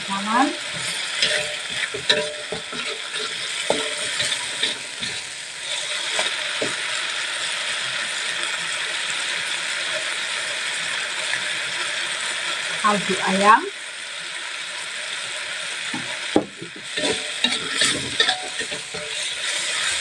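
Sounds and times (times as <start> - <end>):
frying sizzle: 0.0 - 20.0
metal spatula scraping wok: 0.1 - 6.8, 16.7 - 20.0.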